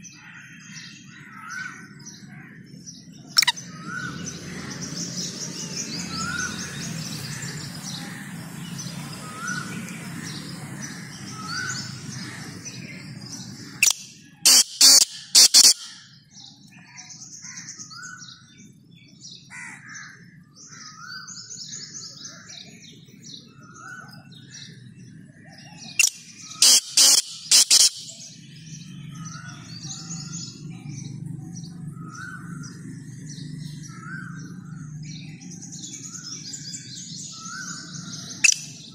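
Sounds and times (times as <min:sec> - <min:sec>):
small birds chirping: 0:00.0 - 0:38.9
francolin calling: 0:03.4 - 0:04.1, 0:13.7 - 0:16.0, 0:26.0 - 0:28.3.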